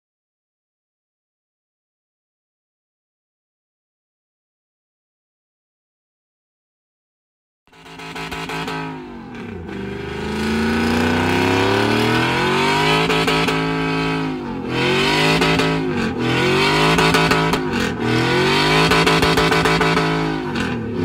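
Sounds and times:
pickup truck engine revving: 7.7s - 21.0s.

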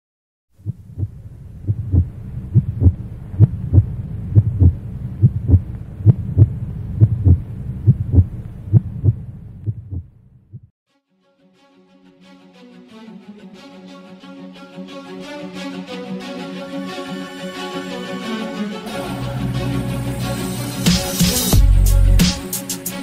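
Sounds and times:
heartbeat thumps: 0.6s - 10.7s
low hum: 0.6s - 10.7s.

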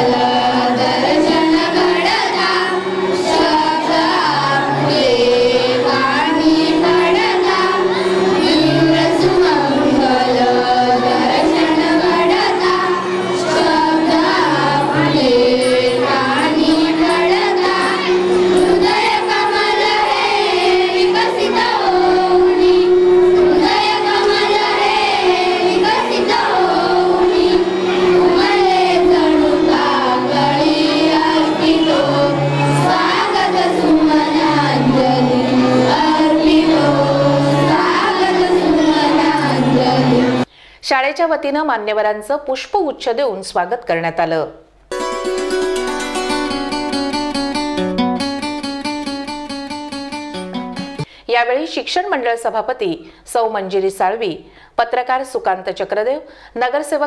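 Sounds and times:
children and woman singing: 0.0s - 40.5s.

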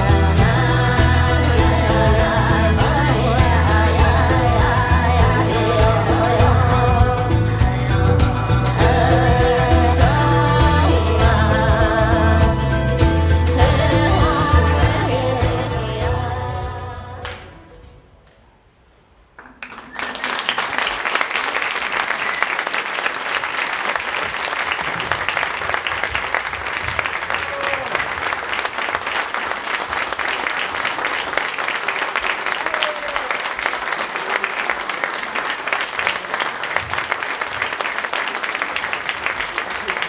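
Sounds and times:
audience applauding: 19.4s - 40.0s.

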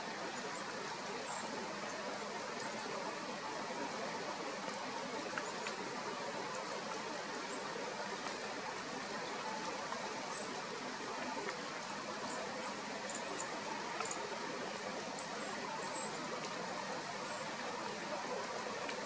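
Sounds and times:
faint ticks: 9.9s - 14.3s.

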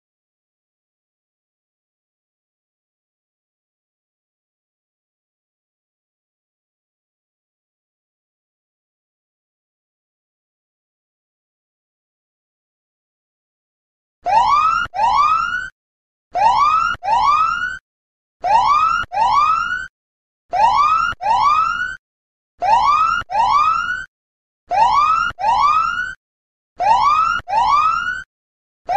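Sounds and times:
police siren whoops: 14.2s - 15.7s, 16.4s - 17.8s, 18.4s - 19.9s, 20.5s - 22.0s, 22.6s - 24.1s, 24.7s - 26.2s, 26.8s - 28.3s.

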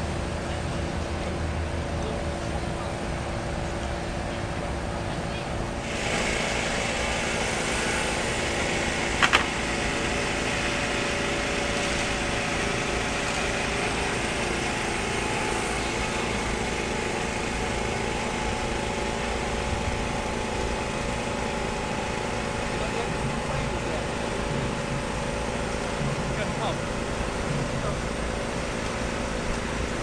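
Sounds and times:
small motor running: 5.4s - 30.0s
sharp knocks: 9.2s - 9.5s.

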